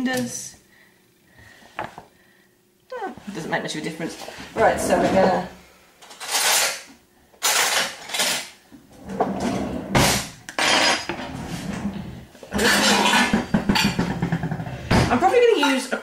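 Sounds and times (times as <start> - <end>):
kitchen utensils rattling: 6.1 - 15.1.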